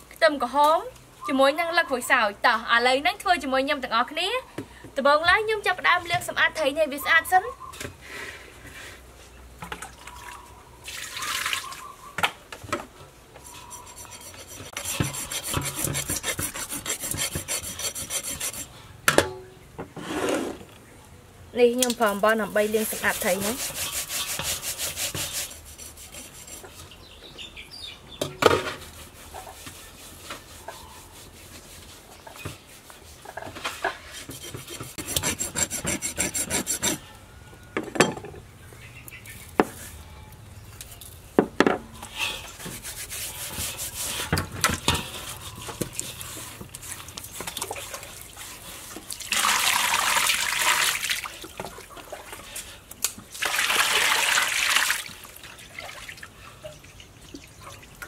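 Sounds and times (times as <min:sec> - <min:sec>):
hands scrubbing fish with salt: 0:13.5 - 0:18.7, 0:22.0 - 0:26.7, 0:42.5 - 0:49.6.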